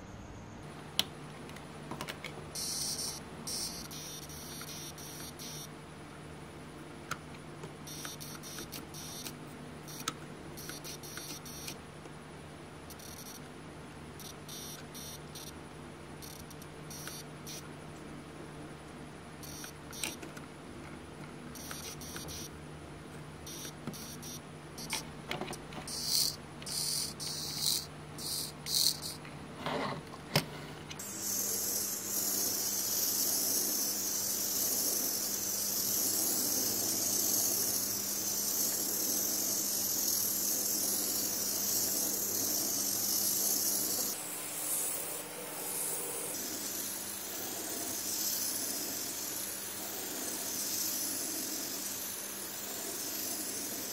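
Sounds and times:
rc car electric motor whine: 0:02.6 - 0:05.7, 0:07.9 - 0:11.8, 0:13.0 - 0:13.4, 0:14.2 - 0:15.5, 0:19.4 - 0:20.2, 0:21.6 - 0:22.5, 0:23.5 - 0:25.0, 0:25.9 - 0:29.2, 0:31.0 - 0:53.9.

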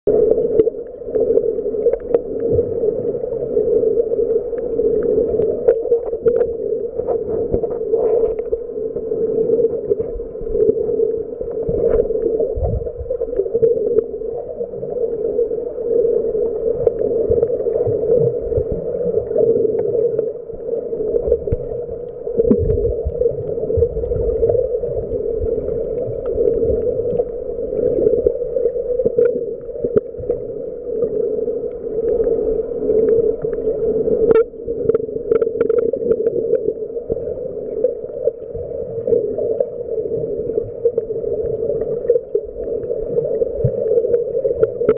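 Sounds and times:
low underwater rumbles: 0:00.0 - 0:44.9
underwater droning hum: 0:00.1 - 0:44.9
faint clicks: 0:00.3 - 0:12.4, 0:16.5 - 0:38.5.

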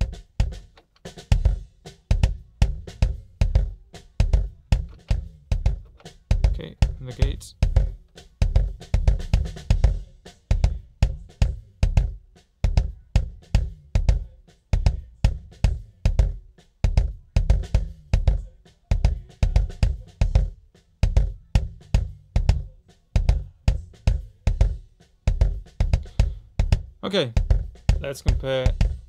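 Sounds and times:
heavy bass drum hits: 0:01.3 - 0:18.4, 0:23.2 - 0:29.0.

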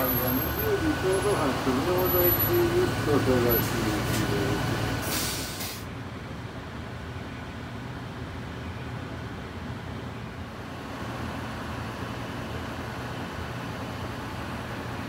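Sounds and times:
low urban hum: 0:00.0 - 0:15.0
loud hiss: 0:00.1 - 0:05.8.

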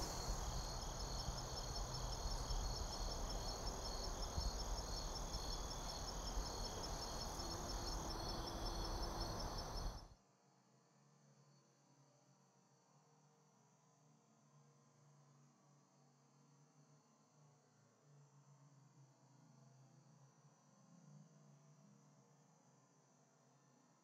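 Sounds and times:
insects trilling: 0:00.0 - 0:10.0.

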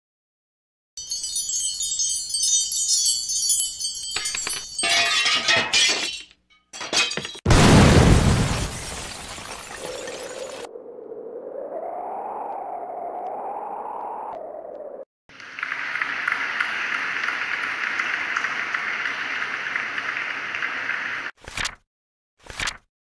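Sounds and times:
high shimmering chime: 0:01.0 - 0:04.9
glassy crashes: 0:01.6 - 0:07.4, 0:08.4 - 0:10.7.

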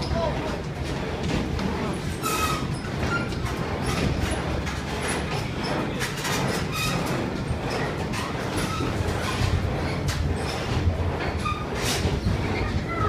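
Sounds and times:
ride car rumbling along track: 0:00.0 - 0:13.0.

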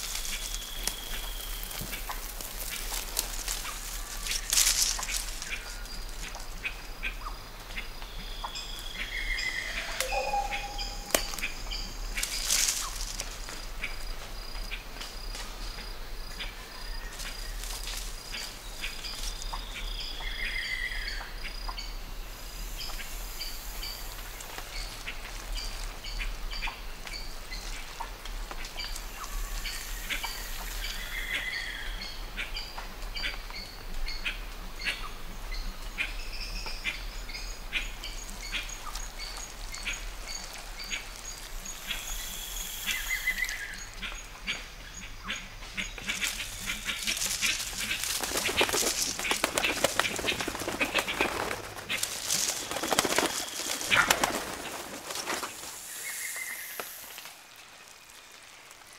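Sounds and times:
insects buzzing high-pitched: 0:08.2 - 0:15.6, 0:37.5 - 0:58.1
bird chirps and calls: 0:08.4 - 0:11.9.

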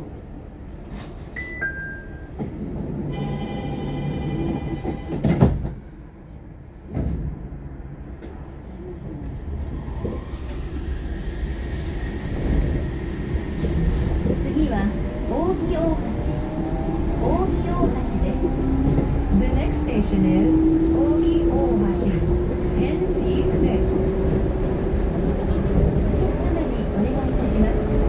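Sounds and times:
short chime: 0:01.4 - 0:02.4
train running noise: 0:02.0 - 0:28.0.

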